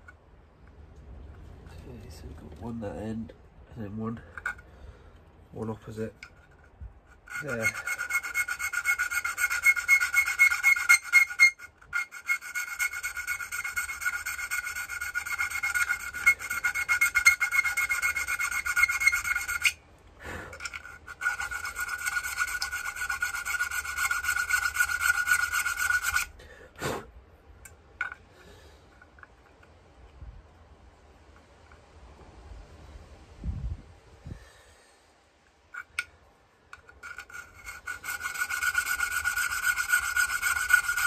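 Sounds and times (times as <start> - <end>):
needle file rasping metal: 6.2 - 19.8, 20.5 - 26.4, 36.7 - 41.0.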